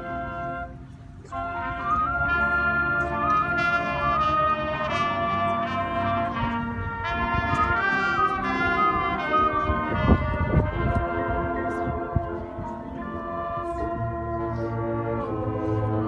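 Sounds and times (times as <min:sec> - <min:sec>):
brass section playing melody: 0:00.0 - 0:16.0.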